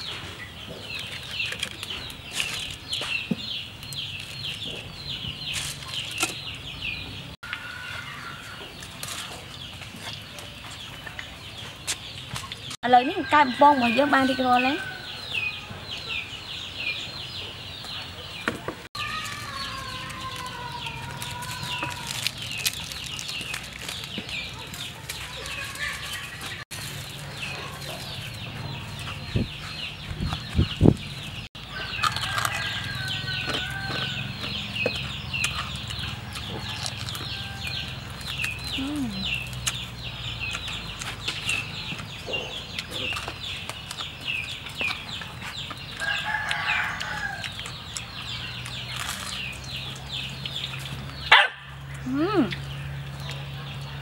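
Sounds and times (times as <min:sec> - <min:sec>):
chicks peeping: 0:00.0 - 0:54.0
chickens clucking: 0:23.8 - 0:54.0.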